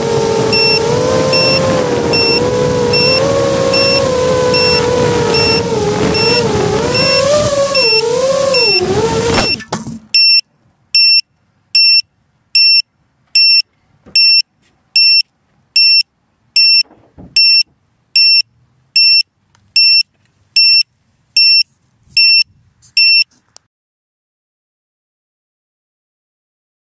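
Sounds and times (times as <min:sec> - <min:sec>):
drone motors whining: 0:00.0 - 0:10.3
short high beeps: 0:00.5 - 0:10.4, 0:11.0 - 0:12.0, 0:12.6 - 0:12.8, 0:13.4 - 0:13.6, 0:14.2 - 0:14.4, 0:15.0 - 0:15.2, 0:15.8 - 0:16.0, 0:16.6 - 0:16.8, 0:17.4 - 0:19.2, 0:19.8 - 0:23.3.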